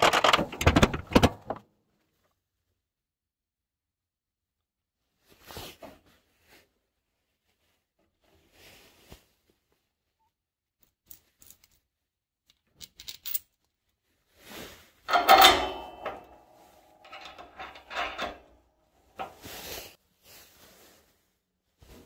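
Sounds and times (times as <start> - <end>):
metal hardware clinking and scraping: 15.1 - 19.7.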